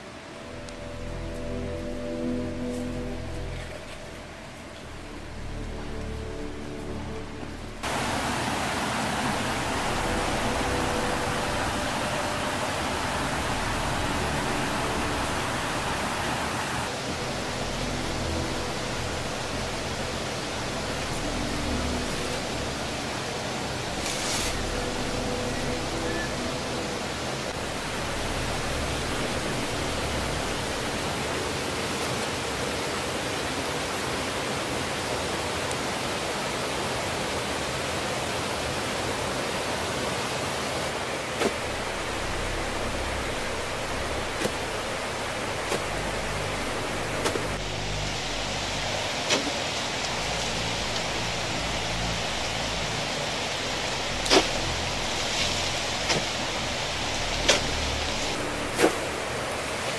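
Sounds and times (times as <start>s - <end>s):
hissing jungle noise: 7.8s - 34.6s.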